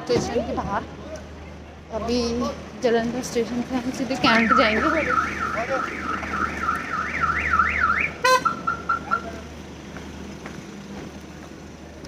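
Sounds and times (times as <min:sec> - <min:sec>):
electronic alarm siren: 0:04.3 - 0:09.2.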